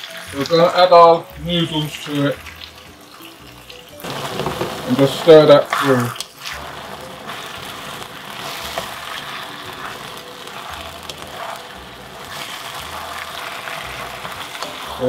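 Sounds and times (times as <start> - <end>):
food sizzling in a wok: 0.0 - 15.0
spatula tapping: 4.0 - 5.1, 5.8 - 15.0.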